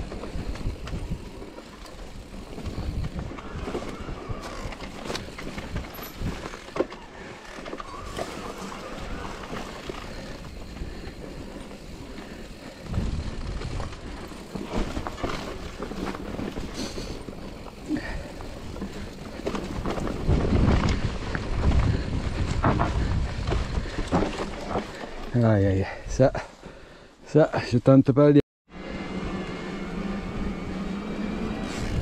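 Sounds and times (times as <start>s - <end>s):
bike rattling over bumps: 0.0s - 25.9s, 29.1s - 32.0s
bike tyres on dirt trail: 0.0s - 27.2s, 28.7s - 32.0s
wind rumble on microphone: 2.1s - 6.5s, 10.2s - 14.2s, 18.0s - 24.8s, 31.5s - 32.0s.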